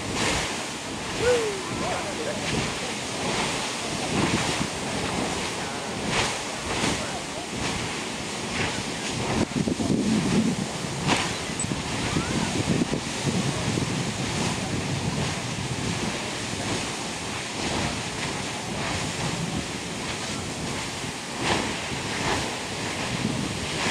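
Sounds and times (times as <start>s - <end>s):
geyser water rushing and splashing: 0.0s - 23.9s.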